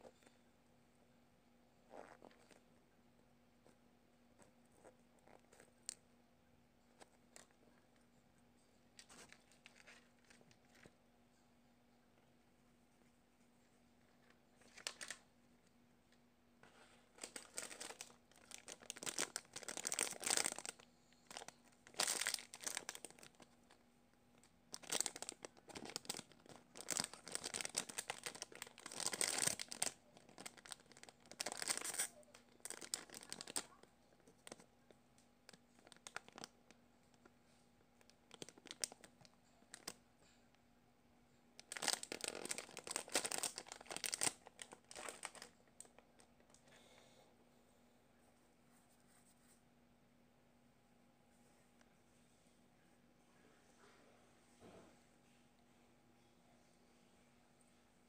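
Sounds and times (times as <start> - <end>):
plastic bag crinkling and tearing: 9.0 - 10.9, 14.6 - 15.2, 17.1 - 23.7, 24.4 - 34.6, 35.5 - 36.5, 38.0 - 40.0, 41.6 - 46.6.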